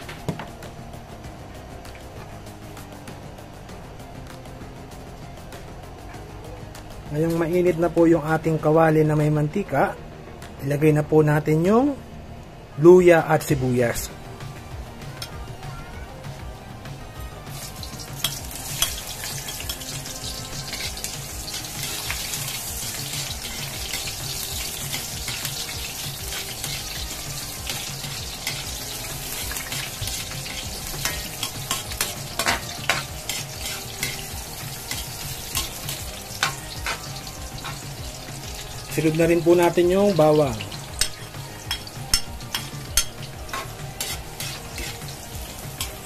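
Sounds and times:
onion sizzling in hot oil: 16.3s - 46.0s
metal spoon scraping wok: 27.7s - 37.9s, 41.0s - 46.0s.

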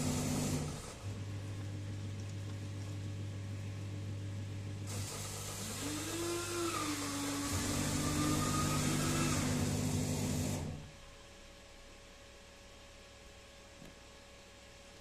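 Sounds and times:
coffee dispensing rush with whine: 0.0s - 3.7s, 4.7s - 10.9s
vending machine hum: 0.0s - 11.9s.

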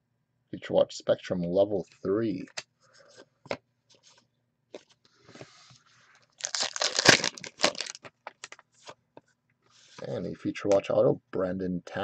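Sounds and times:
foil wrapper tearing and crinkling: 6.4s - 8.6s.

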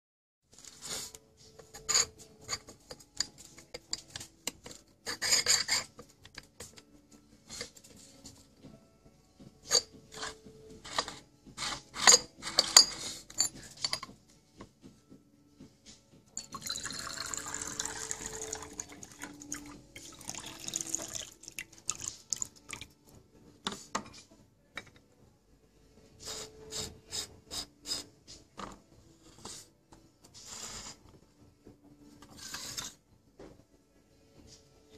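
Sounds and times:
clay teapot clinking: 16.4s - 22.9s
water pouring into glass pitcher: 16.4s - 22.9s.

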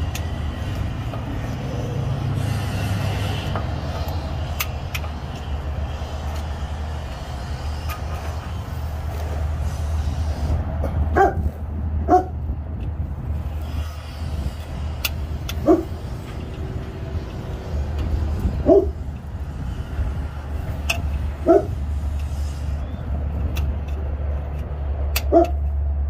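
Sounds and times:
wrench clicking: 0.0s - 8.5s, 12.7s - 25.8s
dog barking: 11.2s - 11.4s, 12.1s - 12.4s, 15.6s - 15.9s, 18.6s - 18.9s, 21.4s - 21.7s, 25.3s - 25.6s.

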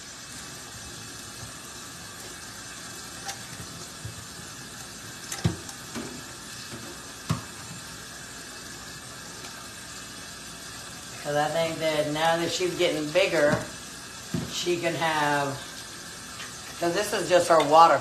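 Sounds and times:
tap running into steel sink: 4.8s - 7.9s.

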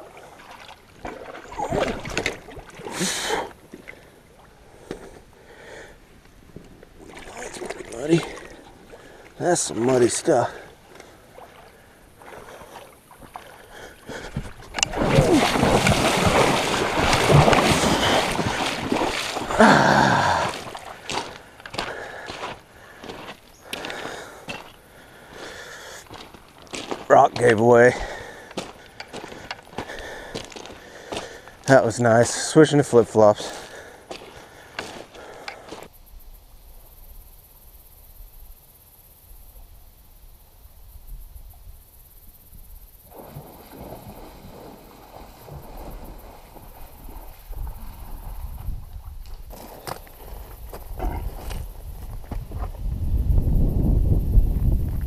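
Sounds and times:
boots splashing through water: 0.0s - 4.0s, 7.0s - 9.1s, 11.0s - 31.6s, 33.4s - 35.9s
high-pitched insect chorus: 7.1s - 55.0s
short breath: 21.8s - 26.1s.

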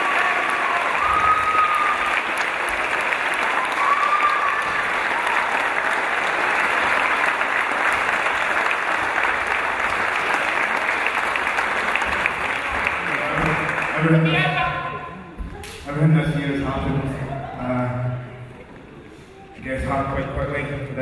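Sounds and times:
crowd applauding: 0.0s - 15.0s.

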